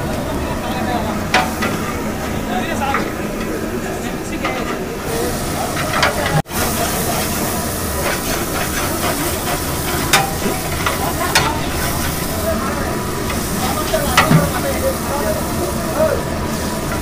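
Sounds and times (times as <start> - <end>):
masala sizzling: 0.0 - 17.0
metal ladle scraping a pot: 7.9 - 14.7.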